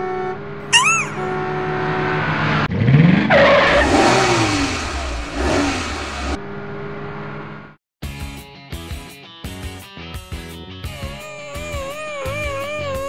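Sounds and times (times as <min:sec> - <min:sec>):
cartoon car engine revving: 0:00.6 - 0:01.6, 0:02.6 - 0:06.4, 0:10.9 - 0:13.0
short chirp: 0:00.7 - 0:01.4.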